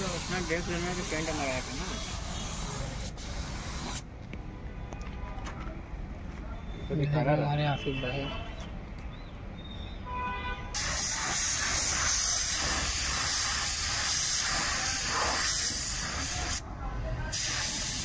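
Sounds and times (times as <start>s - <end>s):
paint spray gun hissing: 0.0s - 4.0s, 10.8s - 16.6s, 17.3s - 18.0s.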